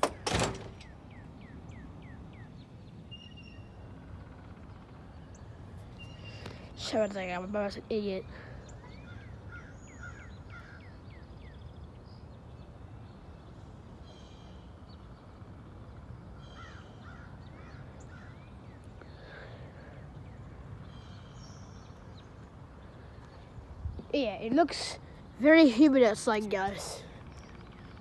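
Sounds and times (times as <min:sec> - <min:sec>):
birds chirping: 0:00.0 - 0:28.0
harsh buzzy bird calls: 0:00.0 - 0:28.0
wind noise: 0:23.6 - 0:24.3.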